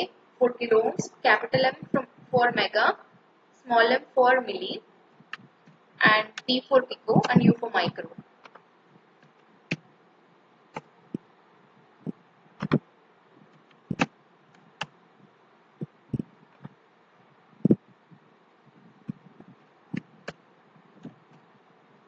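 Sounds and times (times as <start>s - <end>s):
faint steady hiss: 0.0s - 22.0s
computer mouse and keyboard clicks: 8.4s - 8.6s, 12.6s - 12.8s, 13.5s - 15.0s.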